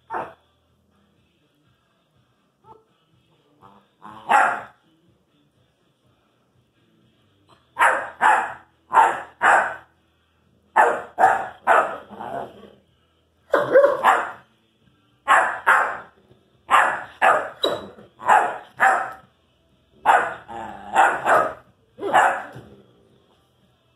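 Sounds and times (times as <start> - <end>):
puppy barking: 0.1 - 0.4, 4.2 - 4.8, 7.7 - 9.9, 10.8 - 12.1, 13.5 - 14.4, 15.3 - 16.1, 16.7 - 19.2, 20.0 - 22.6.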